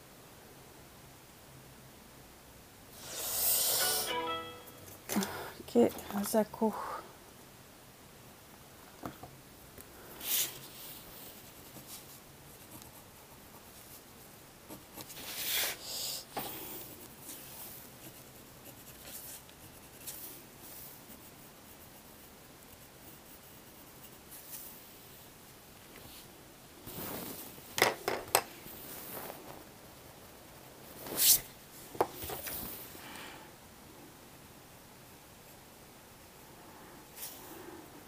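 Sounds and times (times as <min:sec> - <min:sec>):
pencil scratching on paper: 0:11.3 - 0:14.0, 0:14.7 - 0:24.5.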